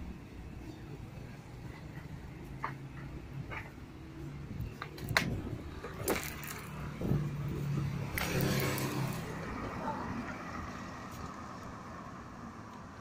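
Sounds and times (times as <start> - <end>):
car engine passing: 5.4 - 12.7.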